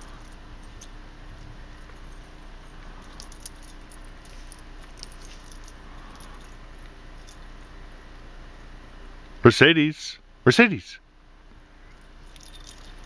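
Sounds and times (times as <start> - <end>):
light clicks and clinks: 0.0 - 8.3, 11.9 - 13.0
low background hiss: 0.0 - 13.0.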